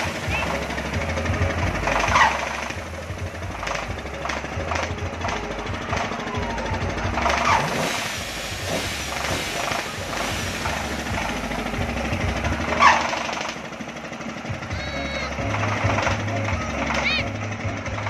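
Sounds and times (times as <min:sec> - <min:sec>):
diesel engine thudding: 0:00.0 - 0:18.0
high-pitched rising cries: 0:05.6 - 0:13.5, 0:14.5 - 0:17.5.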